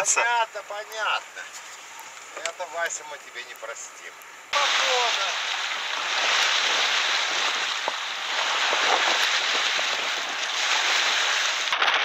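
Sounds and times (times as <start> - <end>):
waves washing onto rocky shore: 4.5 - 12.0
strong wind: 4.6 - 11.7.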